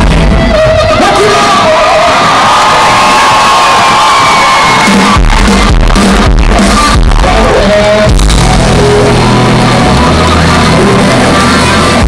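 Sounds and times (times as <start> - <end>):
live rock band playing: 0.0 - 1.5, 3.9 - 12.0.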